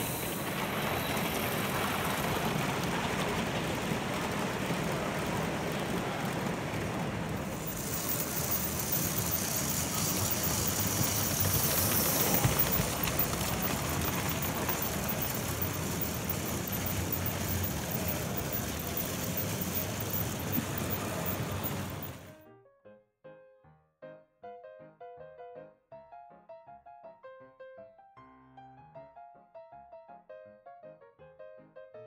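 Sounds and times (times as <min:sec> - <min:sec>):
bright hiss: 0:00.0 - 0:02.3, 0:07.4 - 0:22.3
model train rumbling on track: 0:00.0 - 0:22.4.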